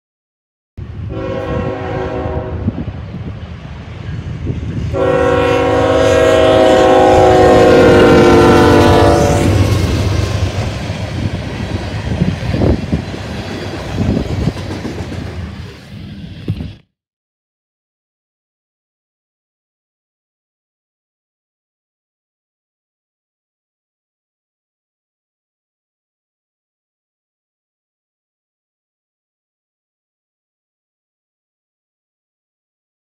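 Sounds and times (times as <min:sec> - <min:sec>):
freight train wheels on rails: 0:00.8 - 0:16.9
locomotive air horn: 0:01.1 - 0:02.8, 0:04.9 - 0:09.8.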